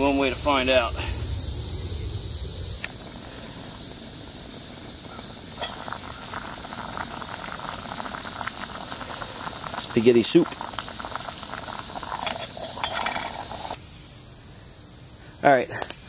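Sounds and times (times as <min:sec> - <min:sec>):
steady high hiss: 0:00.0 - 0:16.0
sauce boiling and bubbling: 0:01.5 - 0:13.8
metal pot lid clink: 0:05.6 - 0:06.0.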